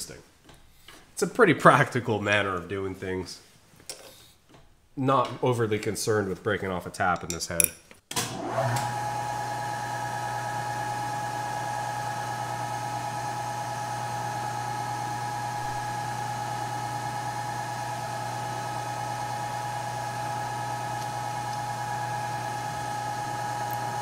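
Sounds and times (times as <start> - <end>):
milling machine spindle motor hum: 8.5 - 24.0.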